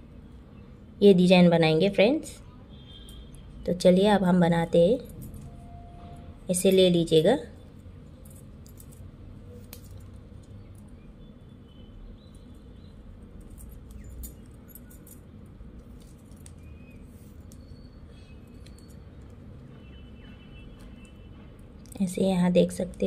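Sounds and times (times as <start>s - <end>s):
low background hum: 0.0s - 23.0s
plastic wire squeaking: 15.8s - 21.2s.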